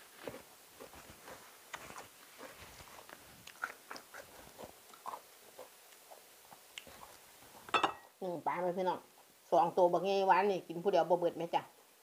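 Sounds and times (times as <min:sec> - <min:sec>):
person chewing food: 0:00.0 - 0:07.7
small food crunches: 0:01.2 - 0:05.2.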